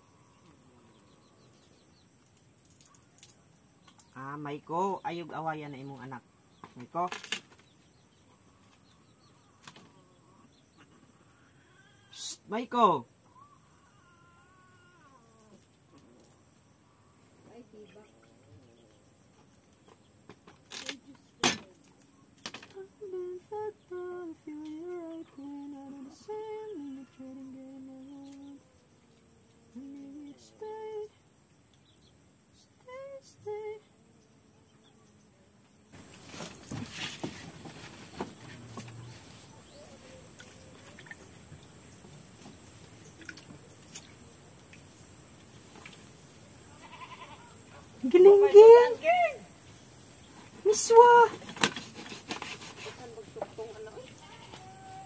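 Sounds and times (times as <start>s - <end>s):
faint steady hiss: 0.0s - 55.0s
person humming softly: 22.7s - 28.8s, 29.5s - 31.2s, 32.6s - 35.5s.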